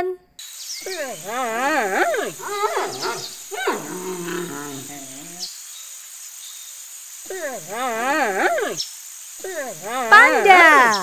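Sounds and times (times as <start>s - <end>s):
giant panda calling: 0.9s - 5.4s, 7.3s - 8.8s, 9.4s - 11.0s.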